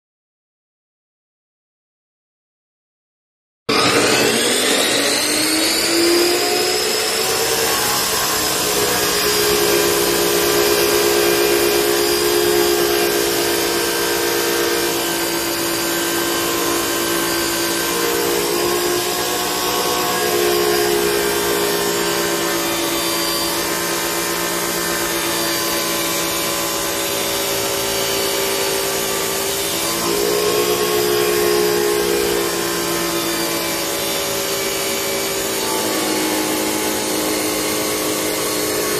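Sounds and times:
cut-off saw motor whining: 3.7 - 38.9
disc grinding through metal pipe: 3.7 - 38.9.

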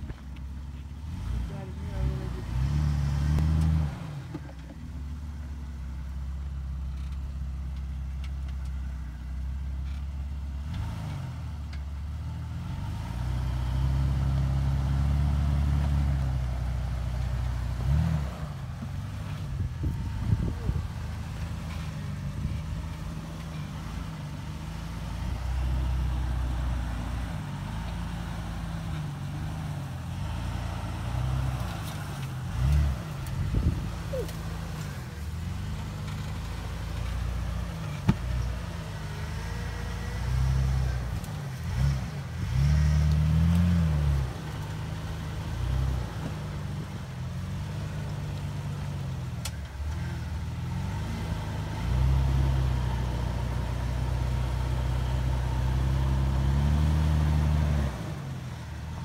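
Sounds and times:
engine revving at low speed: 1.0 - 4.7, 10.5 - 59.0.

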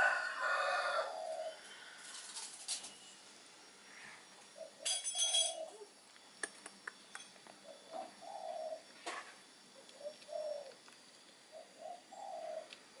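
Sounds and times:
bird cooing: 0.0 - 2.4, 4.0 - 6.0, 7.6 - 9.1, 9.7 - 10.9, 11.5 - 13.0.

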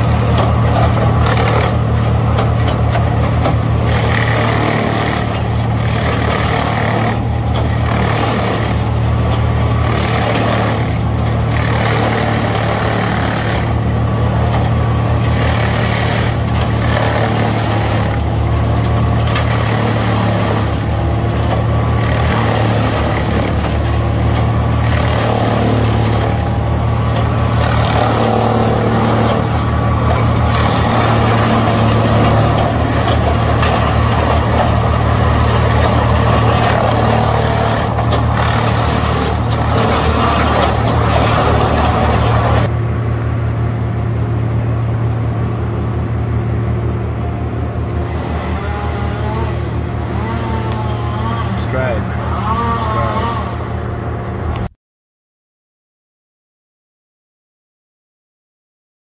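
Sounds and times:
branches crackling in chipper: 0.0 - 42.7
wood chipper engine humming: 0.0 - 54.8.

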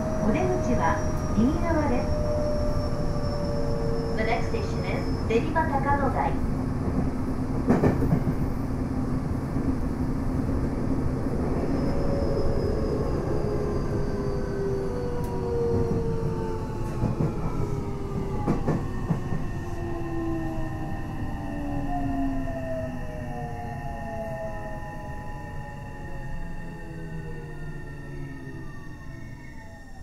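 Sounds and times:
rail-joint clicks: 7.0 - 8.5, 16.8 - 19.5
electric train motor whine: 11.1 - 30.0.

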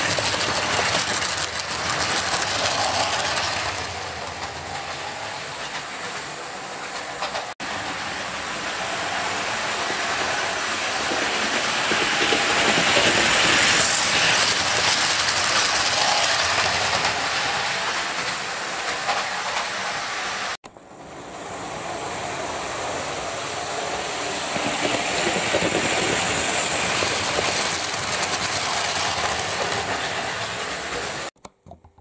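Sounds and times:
wheels clicking over rail joints: 0.0 - 7.6, 11.0 - 19.8, 24.5 - 32.0.

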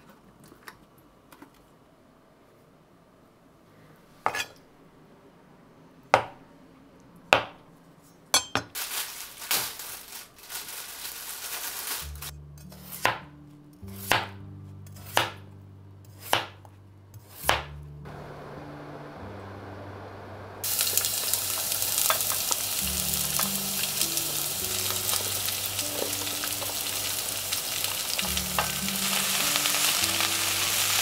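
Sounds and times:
soft background music: 11.1 - 31.0.

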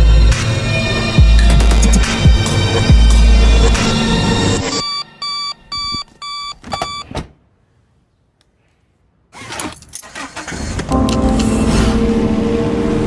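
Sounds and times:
bass-heavy film music: 0.0 - 6.3, 10.9 - 13.0.

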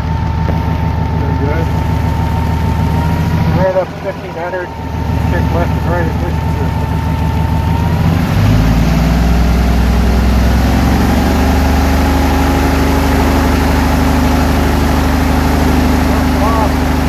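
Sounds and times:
aircraft engine and propeller running: 0.0 - 17.0.

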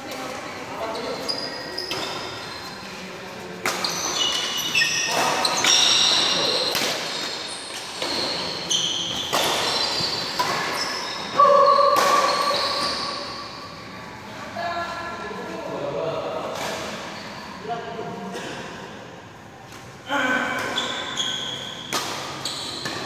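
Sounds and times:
sneakers squeaking on floor: 0.1 - 13.9, 16.5 - 17.6, 20.5 - 23.0
rackets hitting shuttlecock: 3.6 - 11.0, 11.9 - 13.0, 21.6 - 23.0.

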